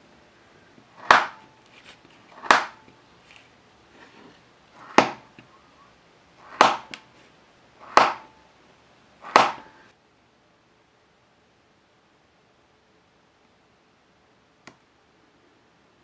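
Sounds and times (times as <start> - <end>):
knife chopping through wood strips: 1.0 - 1.5, 2.3 - 2.9, 4.8 - 5.3, 6.4 - 7.1, 7.8 - 8.4, 9.2 - 9.9
small click: 14.6 - 14.8.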